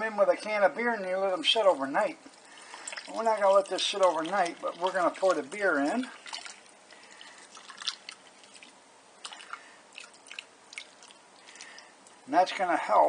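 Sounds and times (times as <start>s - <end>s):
beer foam fizzing: 0.9s - 12.4s
bubbles crackling and popping: 2.2s - 12.1s.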